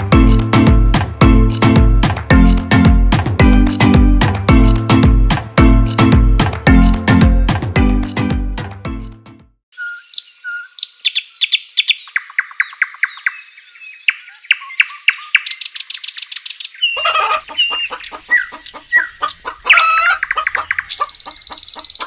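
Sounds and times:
birds chirping and trilling: 0:09.7 - 0:22.0.

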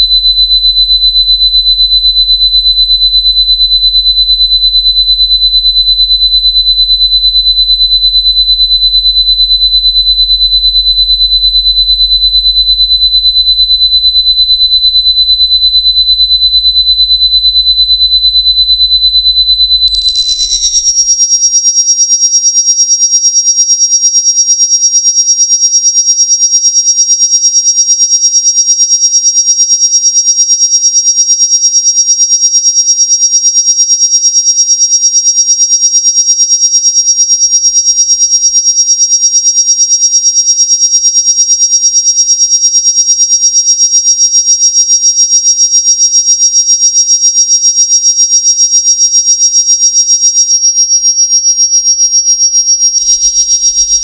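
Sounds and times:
shrill pulsing electronic tone: 0:19.9 - 0:21.1, 0:53.0 - 0:54.0.

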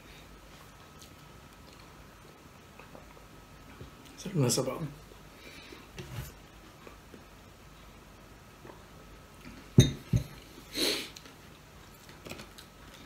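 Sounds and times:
glass mug knocking on table: 0:09.8 - 0:10.4
loud breath through nose: 0:10.6 - 0:11.2.

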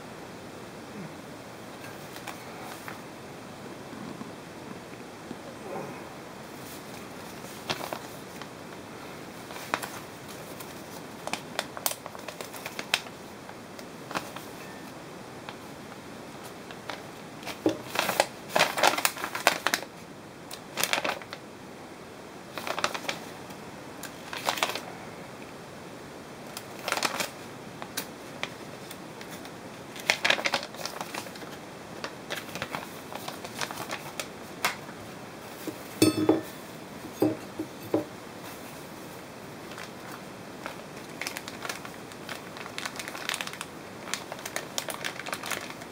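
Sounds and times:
paper and plastic rustling: 0:01.8 - 0:03.0, 0:06.5 - 0:15.7, 0:16.4 - 0:21.4, 0:22.5 - 0:23.4, 0:24.0 - 0:24.9, 0:26.5 - 0:45.9.

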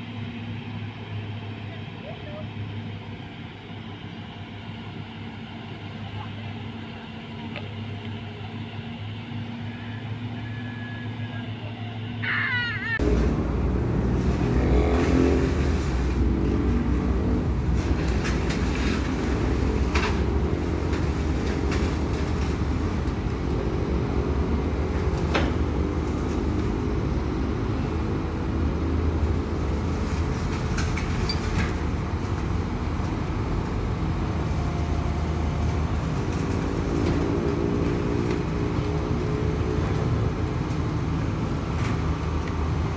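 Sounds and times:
excavator diesel engines rumbling: 0:00.0 - 0:42.9.

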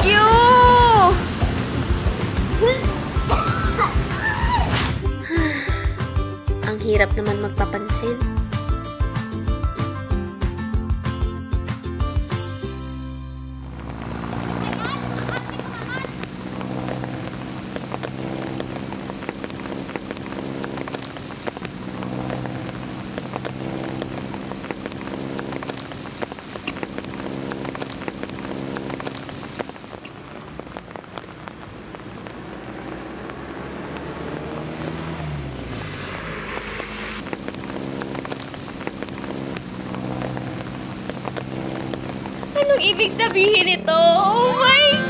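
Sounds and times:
rain pattering on pavement: 0:00.0 - 0:04.7, 0:13.6 - 0:45.0.

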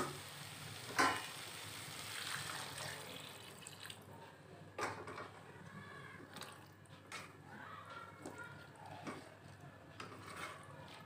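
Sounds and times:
water splashing into hot pan: 0:00.0 - 0:04.0.

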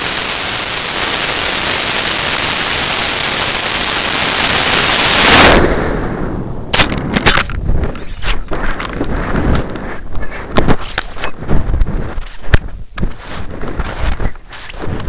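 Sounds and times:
rocket motor rushing: 0:00.0 - 0:05.8
wind buffeting: 0:03.6 - 0:15.0.

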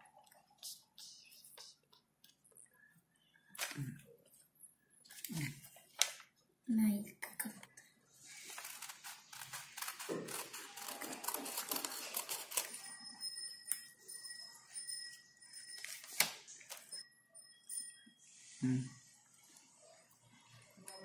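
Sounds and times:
paper rustling: 0:08.2 - 0:12.8, 0:15.8 - 0:16.9
scissors snipping paper: 0:08.4 - 0:12.9
high ringing tone: 0:12.0 - 0:18.6, 0:20.8 - 0:21.0.

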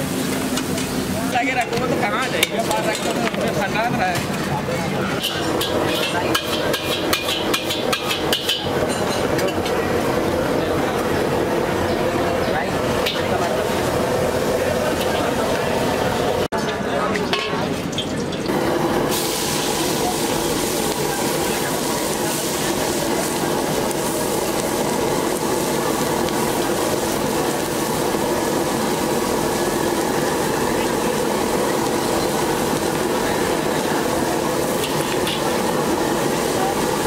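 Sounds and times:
vegetables sizzling in hot oil: 0:00.0 - 0:04.2, 0:05.1 - 0:10.1, 0:17.9 - 0:37.0.

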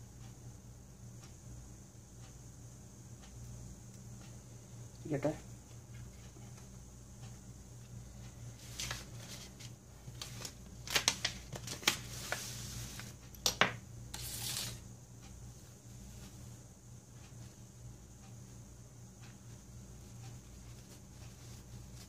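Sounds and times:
paper rustling: 0:08.6 - 0:13.2, 0:14.1 - 0:14.8
small tools clicking and tapping: 0:13.3 - 0:13.8.

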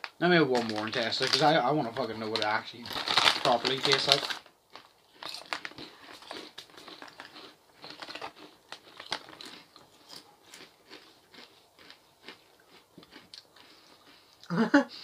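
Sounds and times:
plastic packet crinkling: 0:00.0 - 0:12.4
crisps crunching: 0:00.0 - 0:14.6.

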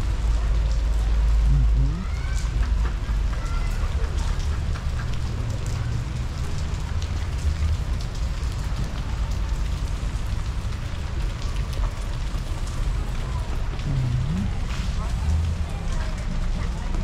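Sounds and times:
rain falling: 0:00.0 - 0:17.0
steady low rumble: 0:13.6 - 0:16.6.

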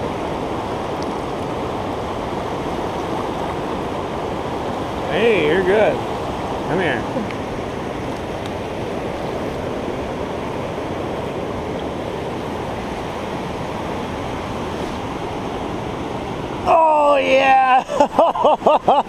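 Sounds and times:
river rapids over rocks: 0:00.0 - 0:18.1.

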